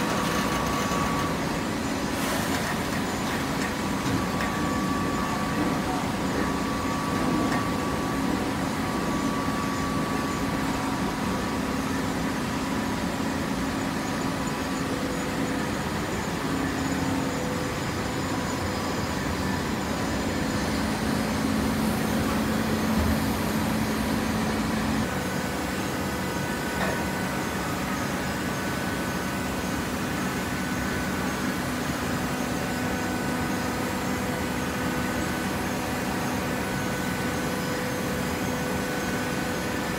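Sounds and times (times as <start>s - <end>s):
baler motor and hydraulic hum: 0.0s - 39.9s.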